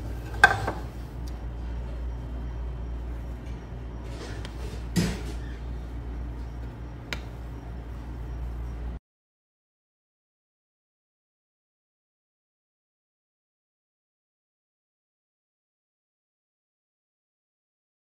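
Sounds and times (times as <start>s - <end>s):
steady low hum: 0.0s - 9.0s.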